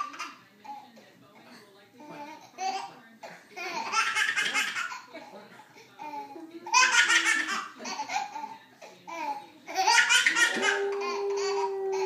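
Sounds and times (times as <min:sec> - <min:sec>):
baby laughing: 0:03.6 - 0:05.2, 0:06.0 - 0:08.5, 0:09.1 - 0:12.0
dog howling: 0:10.4 - 0:12.0.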